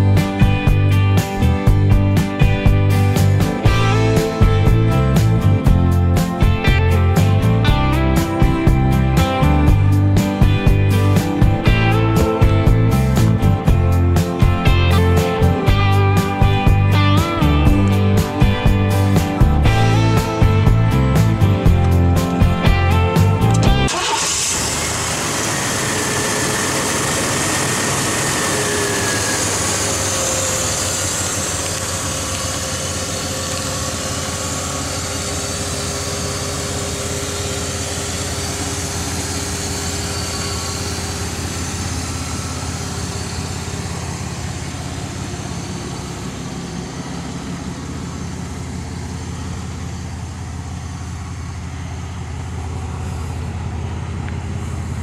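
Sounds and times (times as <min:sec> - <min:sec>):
engine idling: 0:00.0 - 0:55.0.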